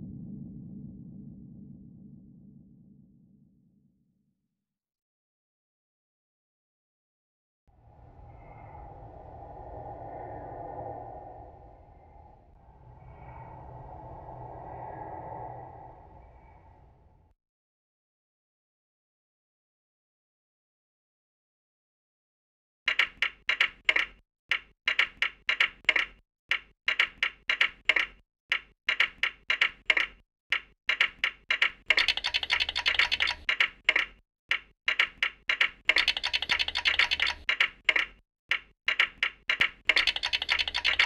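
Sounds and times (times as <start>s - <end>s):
rhythmic synthesized clicking: 29.8s - 41.0s.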